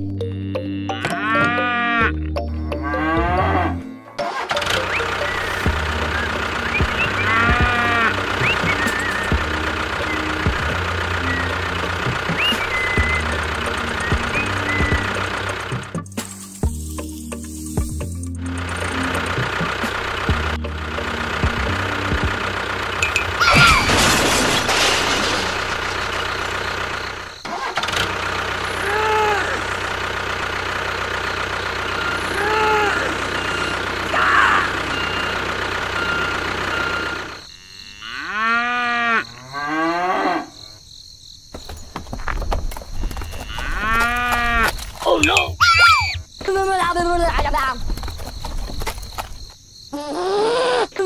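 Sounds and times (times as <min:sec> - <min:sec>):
tractor engine running: 0:00.0 - 0:37.5, 0:41.5 - 0:49.6
cow mooing: 0:00.6 - 0:04.0, 0:07.0 - 0:08.6, 0:37.5 - 0:40.8, 0:43.3 - 0:44.7.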